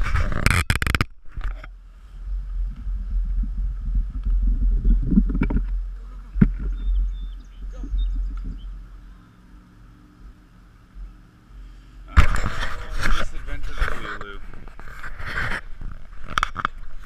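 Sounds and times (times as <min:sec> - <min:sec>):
wind buffeting microphone: 0:01.3 - 0:09.2.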